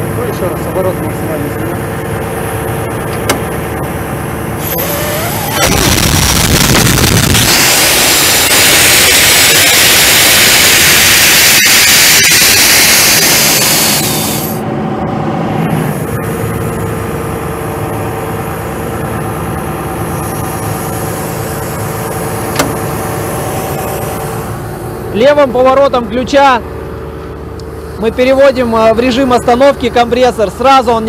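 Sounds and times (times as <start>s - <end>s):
diesel engine running: 0.0s - 31.0s
door latch click: 3.1s - 3.5s, 22.5s - 22.8s
compressed air rushing out: 4.6s - 14.7s.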